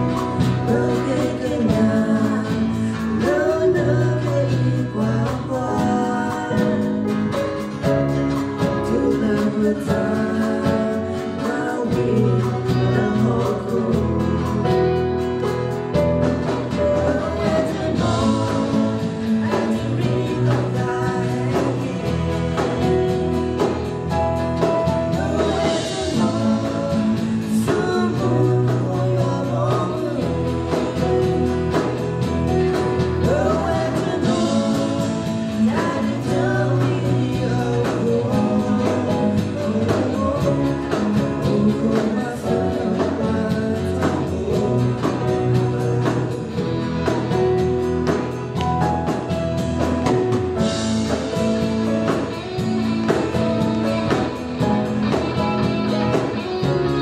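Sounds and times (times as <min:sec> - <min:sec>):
woman singing through microphone: 0:00.0 - 0:07.7, 0:08.5 - 0:15.4, 0:16.5 - 0:47.3
electronic keyboard chords and bass: 0:12.0 - 0:57.0.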